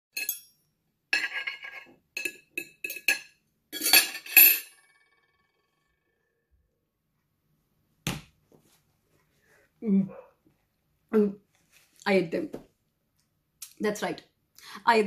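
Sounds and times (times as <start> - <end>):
cutlery clinking on a plate: 0.2 - 0.5, 1.2 - 4.9.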